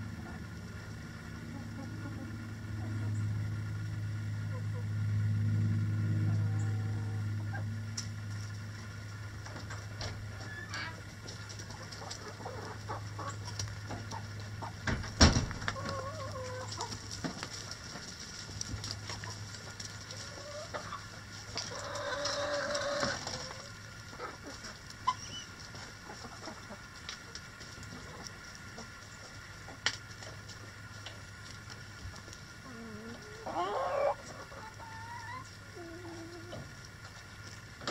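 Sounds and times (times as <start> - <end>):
chickens clucking: 0.0 - 37.9
low steady hum: 0.0 - 37.9
chicken drawn-out call: 10.3 - 14.8, 15.6 - 17.1, 20.0 - 27.0, 32.6 - 36.8.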